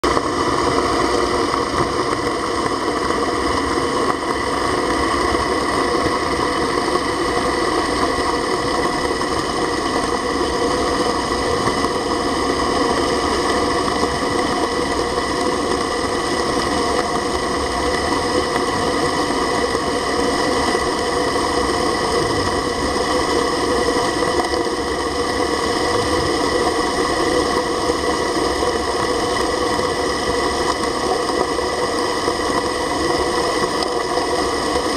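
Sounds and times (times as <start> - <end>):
underwater pump humming: 0.0 - 34.9
rushing noise: 15.8 - 34.9.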